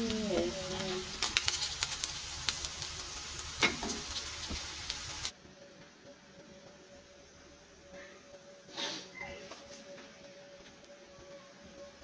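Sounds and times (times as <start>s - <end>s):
meat sizzling in a pan: 0.0s - 5.3s
wooden spatula clicks and scrapes: 0.8s - 2.8s.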